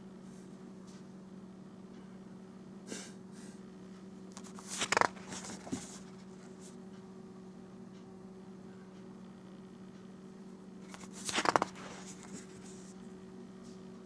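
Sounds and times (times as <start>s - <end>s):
steady low hum: 0.0s - 14.0s
paper page turning: 4.4s - 6.4s, 10.8s - 13.0s.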